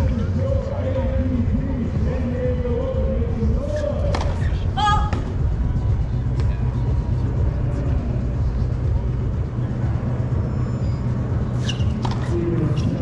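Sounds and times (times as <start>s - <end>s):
low outdoor rumble: 0.0s - 13.0s
racket striking tennis ball: 11.6s - 12.3s.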